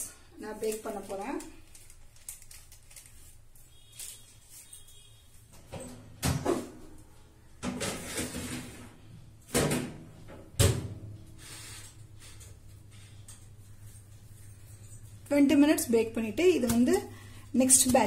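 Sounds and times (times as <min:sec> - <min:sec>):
low steady hum: 0:10.1 - 0:18.0.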